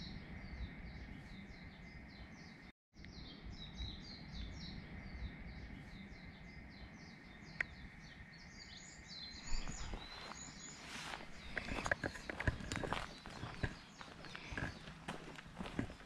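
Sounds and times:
birds chirping: 0:00.0 - 0:16.0
footsteps on ground: 0:09.4 - 0:16.0.

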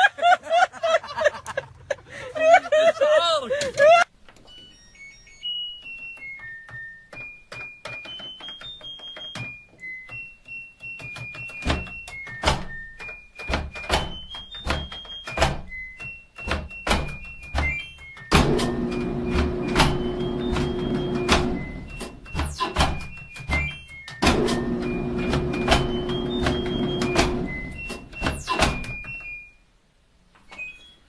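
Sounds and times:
knocks and clicks on machine: 0:10.9 - 0:15.7, 0:16.4 - 0:29.2.

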